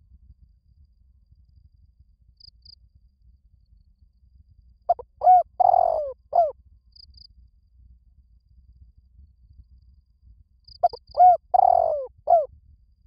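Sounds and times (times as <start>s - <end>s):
dove cooing: 4.9s - 6.5s, 10.8s - 12.5s.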